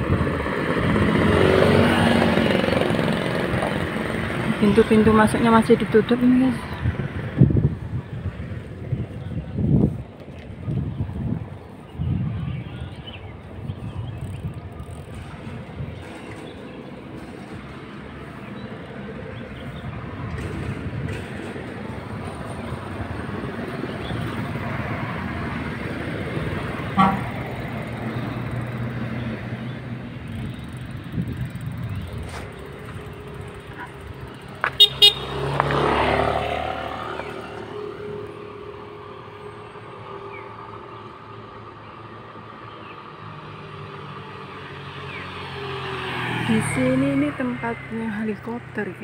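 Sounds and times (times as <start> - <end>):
vehicle passing close by: 0.0 - 11.4, 13.6 - 49.0
road traffic passing: 0.0 - 49.0
vehicle horn beeping: 26.9 - 27.4, 34.7 - 35.5.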